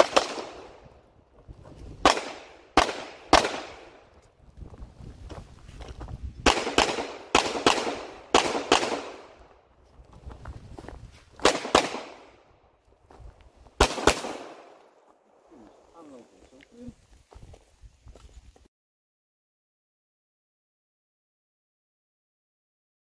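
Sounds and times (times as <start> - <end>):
pistol shots with echo: 0.0 - 0.8, 2.0 - 4.0, 6.4 - 9.4, 11.4 - 12.3, 13.8 - 14.7.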